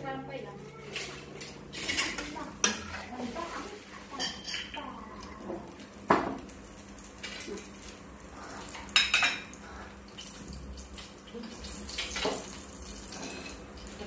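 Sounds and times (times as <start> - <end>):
vegetables sizzling in a wok: 1.6 - 9.6, 10.4 - 14.0.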